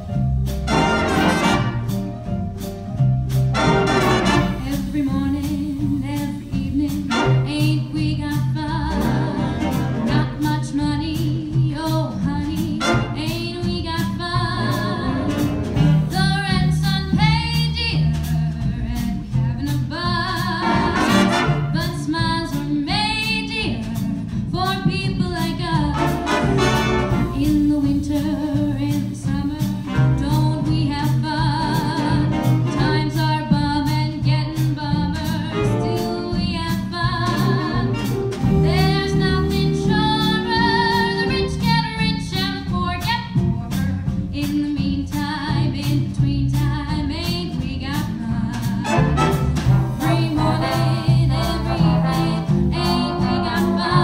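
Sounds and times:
jazz big band playing swing: 0.0s - 54.0s
trombones: 0.5s - 2.3s, 3.4s - 5.0s, 7.1s - 8.0s, 9.0s - 10.5s, 12.7s - 13.5s, 14.7s - 16.2s, 20.6s - 21.9s, 25.9s - 27.6s, 29.8s - 30.7s, 31.6s - 33.2s, 37.2s - 41.4s, 48.8s - 54.0s
woman singing: 4.4s - 15.5s, 16.1s - 49.2s, 50.0s - 54.0s.

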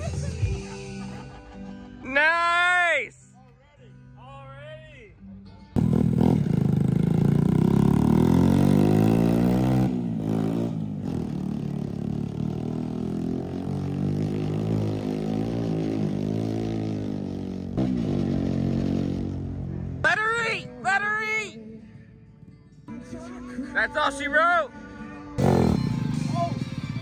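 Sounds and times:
vehicle engine revving: 5.8s - 20.0s, 25.4s - 27.0s.

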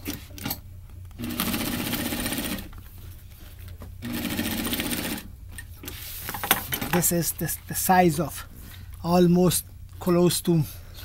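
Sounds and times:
sewing machine stitching canvas: 1.2s - 2.7s, 4.0s - 5.3s.

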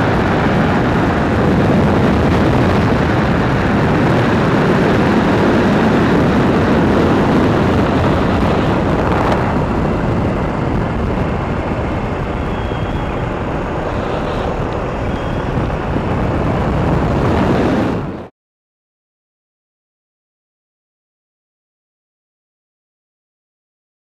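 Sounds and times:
motorcycle engines running: 0.0s - 18.3s
wind rushing over microphone: 0.0s - 18.3s.

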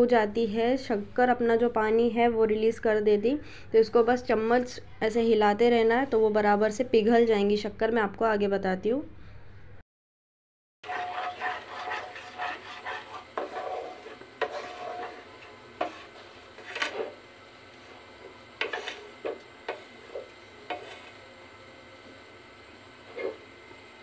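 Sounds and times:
wooden spatula scraping a pan: 10.8s - 21.2s, 23.1s - 23.5s.

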